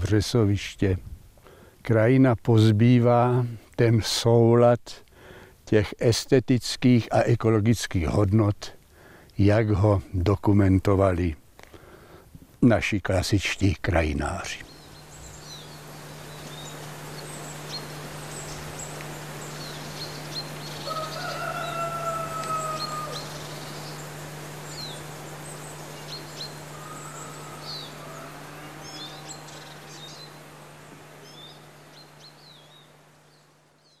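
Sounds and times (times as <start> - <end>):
steady low hum: 0.0 - 34.0
small birds chirping: 13.6 - 34.0.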